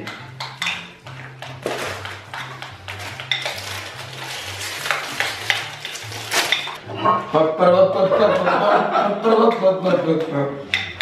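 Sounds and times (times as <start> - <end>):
plastic wrapper crinkling: 1.6 - 6.8.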